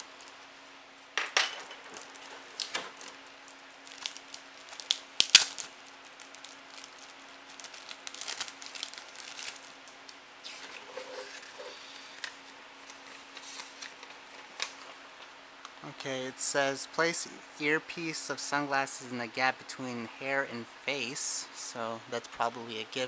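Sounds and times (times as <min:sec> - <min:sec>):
plastic packaging crinkling: 0:01.7 - 0:15.4
paper sheet rustling: 0:10.4 - 0:15.3.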